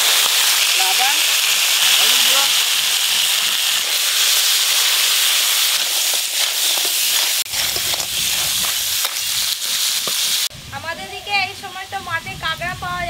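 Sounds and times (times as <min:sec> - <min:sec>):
crab sizzling in hot oil: 0:00.0 - 0:10.5
spatula scraping and knocking pan: 0:03.4 - 0:10.5.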